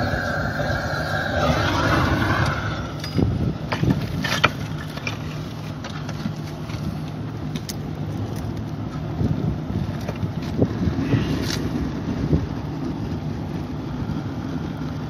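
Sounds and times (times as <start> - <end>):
gas torch roaring: 0.0 - 5.0
fire burning in metal bucket: 0.0 - 15.0.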